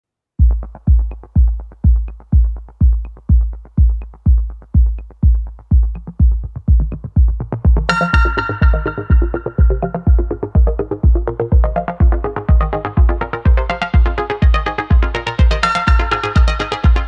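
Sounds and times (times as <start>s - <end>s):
electronic music with kick drum: 0.4s - 17.0s
synth part: 7.8s - 17.0s.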